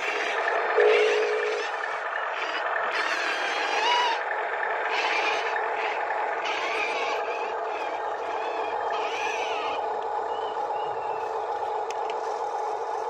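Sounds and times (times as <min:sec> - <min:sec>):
toy electric motor whirring: 0:00.0 - 0:00.4, 0:01.4 - 0:04.3, 0:04.9 - 0:09.8.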